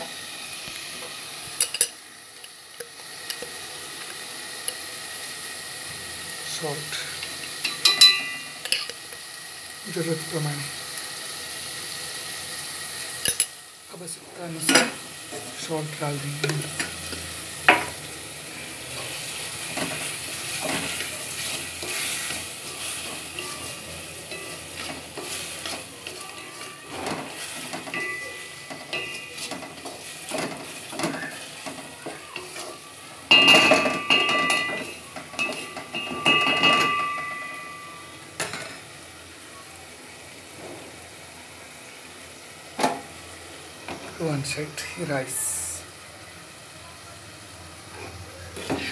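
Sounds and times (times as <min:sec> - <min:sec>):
tomatoes sizzling in a pot: 0:00.0 - 0:48.9
pot ringing: 0:01.6 - 0:02.0, 0:07.6 - 0:09.0, 0:22.6 - 0:29.9, 0:33.3 - 0:38.2
spoon scraping a pot: 0:19.7 - 0:31.8.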